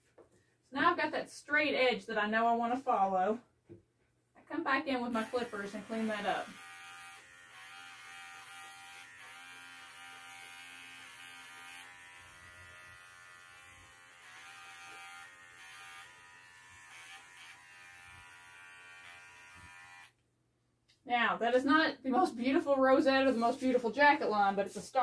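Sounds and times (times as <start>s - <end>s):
pet clipper buzzing: 5.1s - 20.2s.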